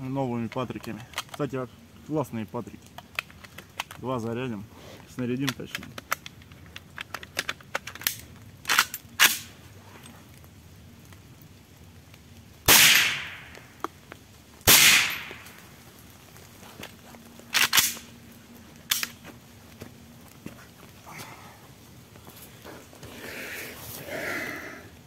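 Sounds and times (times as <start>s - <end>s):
shotgun shots with echo: 12.7s - 13.5s, 14.7s - 15.4s.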